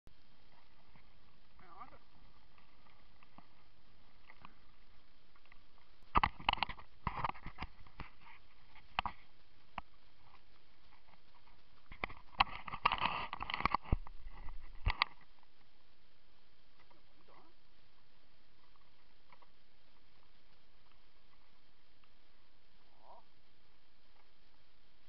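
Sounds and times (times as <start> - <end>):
steady background hiss: 0.1 - 25.0
camera handling rustling and knocks: 6.1 - 9.2, 11.9 - 15.3.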